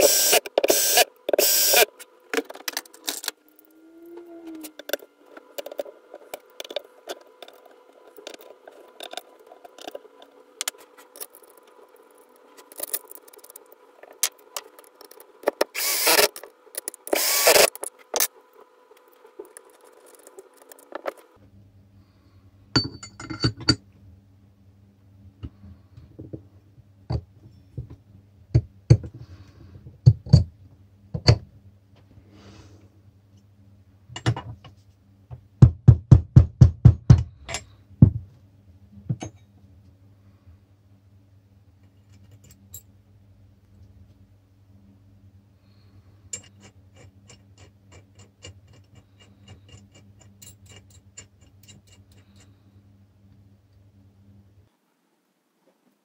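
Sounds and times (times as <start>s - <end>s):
power tool bursts: 0.0s - 1.9s, 15.7s - 16.4s, 17.1s - 18.3s
tools clicking and knocking on metal: 22.8s - 23.8s, 34.1s - 34.6s, 36.8s - 38.2s, 39.1s - 39.5s, 46.3s - 52.5s.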